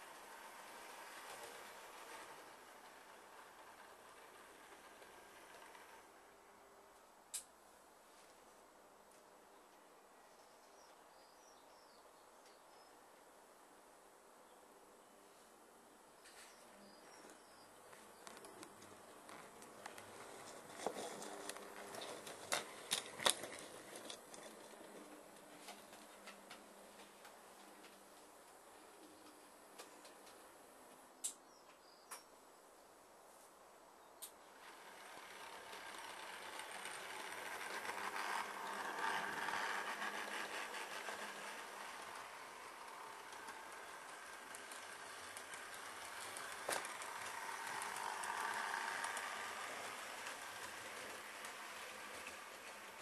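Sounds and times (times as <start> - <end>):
model train wheels clicking: 0.0 - 6.6, 18.1 - 27.9, 34.2 - 53.0.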